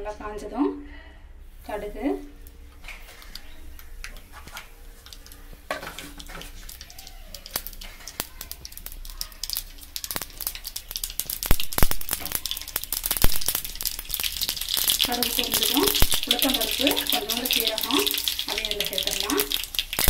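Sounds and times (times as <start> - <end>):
seeds popping and crackling: 2.8 - 20.0
seeds sizzling in hot oil: 2.8 - 20.0.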